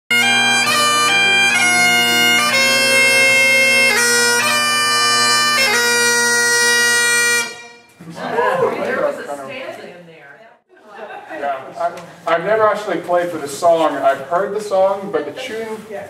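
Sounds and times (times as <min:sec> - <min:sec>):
bagpipe chanter melody: 0:00.1 - 0:08.0
bagpipe drones: 0:00.1 - 0:08.0.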